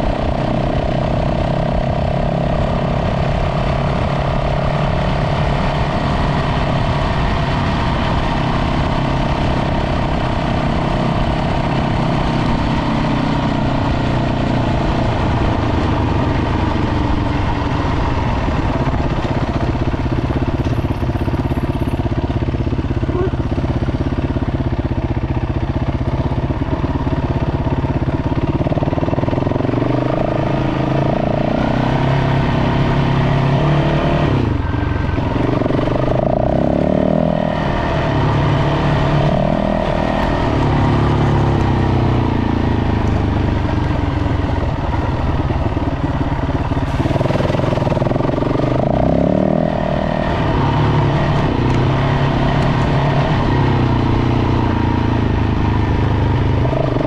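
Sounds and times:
dirt bike engine revving: 27.7s - 57.0s.

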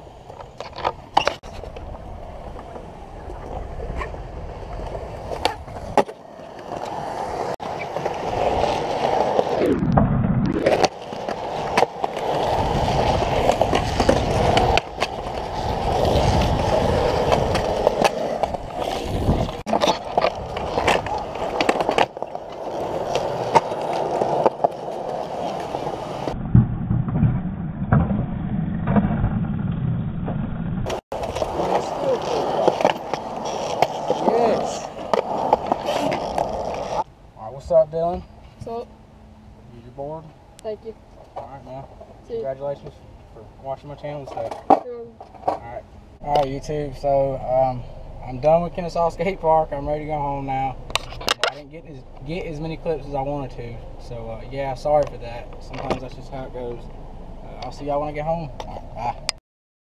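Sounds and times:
skateboard wheels rolling on concrete: 0.0s - 38.9s, 39.7s - 59.4s
skateboards clacking on ground: 10.6s - 26.4s, 30.9s - 37.0s.

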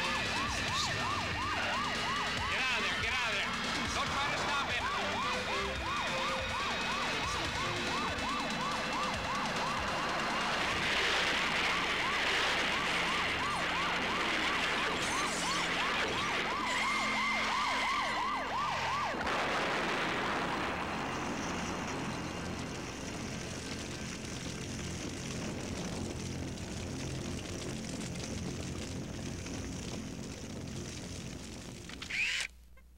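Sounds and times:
police siren yelping: 0.0s - 24.6s
steady rushing noise: 0.0s - 31.9s.

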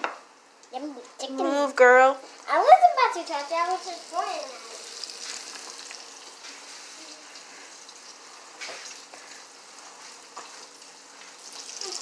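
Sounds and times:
chicken deep-frying in oil: 2.9s - 12.0s.

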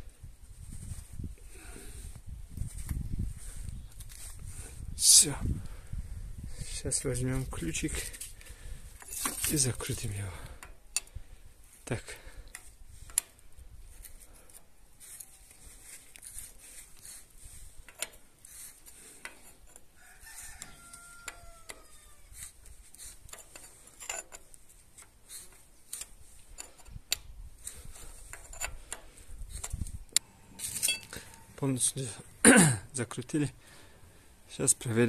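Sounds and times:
wrench clicking and scraping on metal: 9.0s - 11.2s, 12.1s - 15.4s, 16.1s - 31.6s
rooster crowing: 20.0s - 22.4s.

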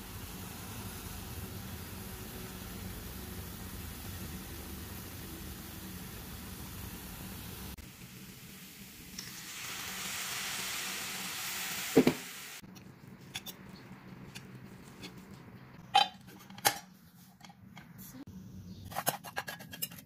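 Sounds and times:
leaves sizzling in a pot: 0.0s - 12.6s.

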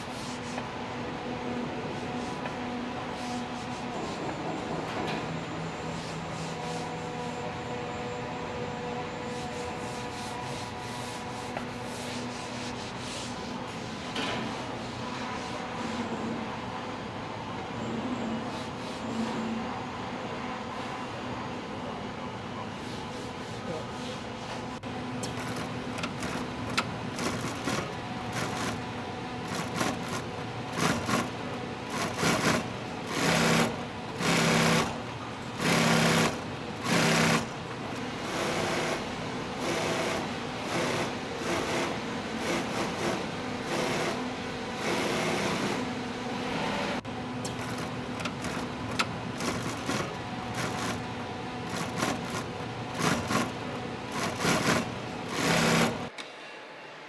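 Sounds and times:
industrial sewing machines stitching: 25.2s - 46.0s, 47.4s - 56.1s.

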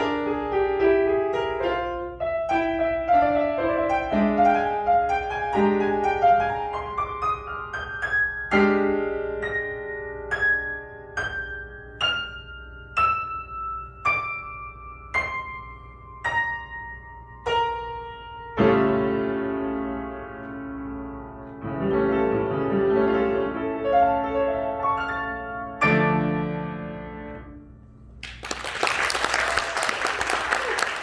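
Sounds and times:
slow piano piece: 0.0s - 31.0s
audience applause: 28.2s - 31.0s.

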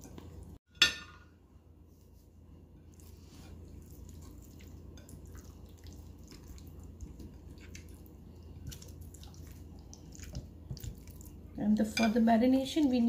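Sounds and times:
hands squishing wet chicken: 2.9s - 11.4s.

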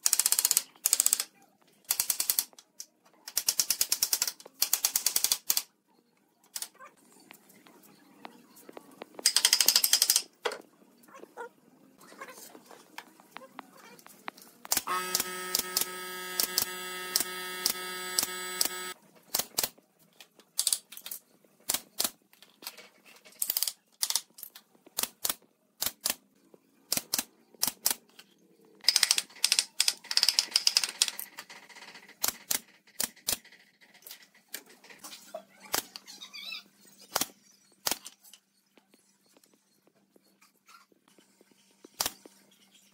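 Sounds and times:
pneumatic nail gun shots: 14.7s - 19.0s.

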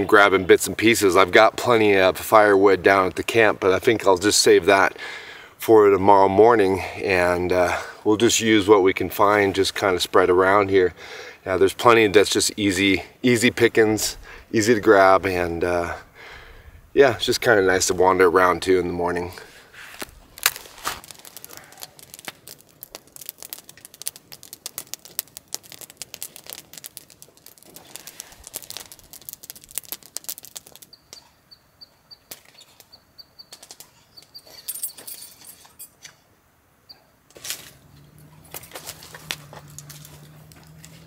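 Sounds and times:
wood crackling and snapping: 17.2s - 31.3s, 32.3s - 32.9s, 33.5s - 34.0s, 37.3s - 41.0s.

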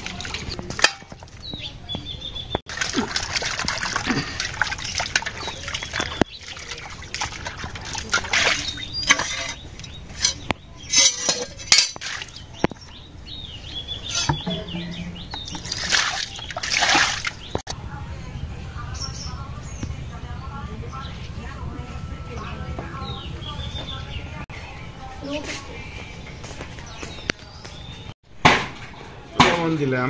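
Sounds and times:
water splashing into steel bowl: 0.0s - 1.4s, 2.7s - 12.8s, 14.1s - 17.6s
water poured onto concrete floor: 2.7s - 9.6s, 15.5s - 17.4s.

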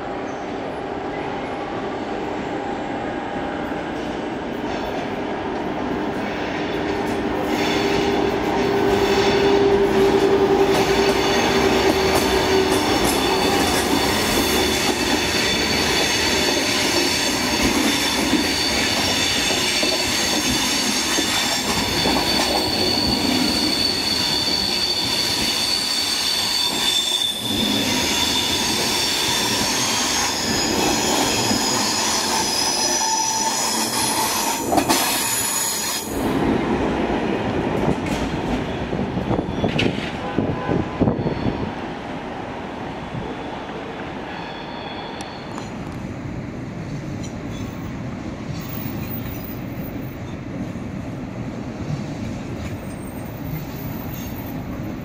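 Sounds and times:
train hum: 0.0s - 55.0s
high steady squeal: 10.7s - 36.1s.

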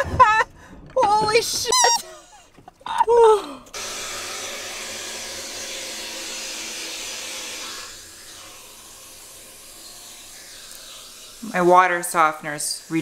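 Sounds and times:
water softener rushing hiss: 3.7s - 13.0s.

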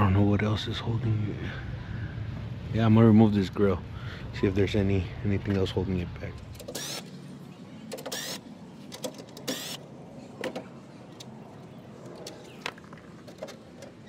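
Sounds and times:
cordless impact driver whirring: 6.6s - 7.1s, 7.9s - 8.4s, 9.4s - 9.8s.

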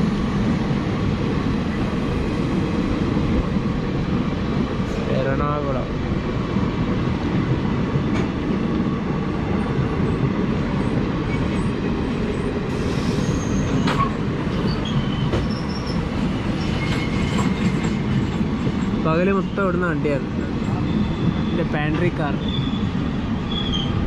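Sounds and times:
train wheels rumbling on rails: 0.0s - 24.0s
high-pitched wheel squeals: 13.0s - 17.5s, 22.3s - 22.9s, 23.5s - 24.0s.

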